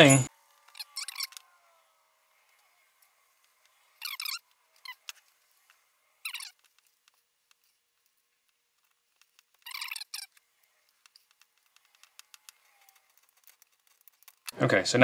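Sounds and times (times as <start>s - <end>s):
connector squeaky scrapes: 0.5s - 14.6s.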